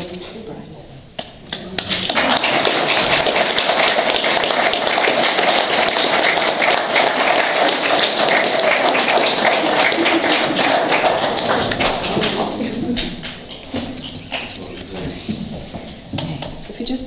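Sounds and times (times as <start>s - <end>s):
people applauding: 1.5s - 15.5s.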